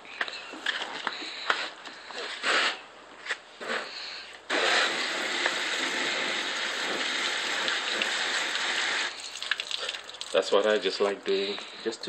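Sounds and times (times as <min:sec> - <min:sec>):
hose spraying water on car: 0:04.5 - 0:10.5.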